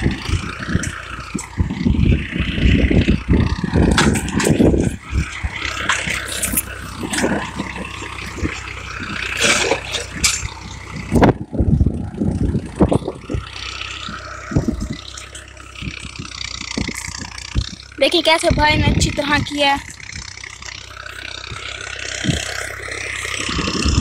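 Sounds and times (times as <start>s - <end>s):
clods scraping and knocking tines: 0.0s - 11.4s
tractor engine under load: 0.0s - 24.0s.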